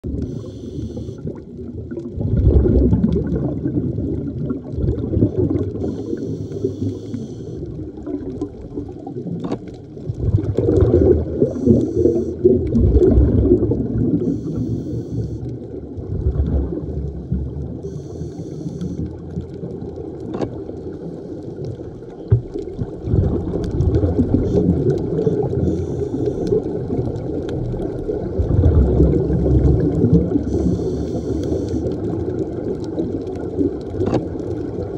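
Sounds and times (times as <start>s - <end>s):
bubbling and gurgling exhale: 0.0s - 34.9s
regulator hiss on inhale: 0.1s - 1.3s, 5.8s - 7.7s, 11.4s - 12.5s, 14.2s - 15.5s, 17.8s - 19.2s, 24.4s - 26.6s, 30.4s - 32.0s.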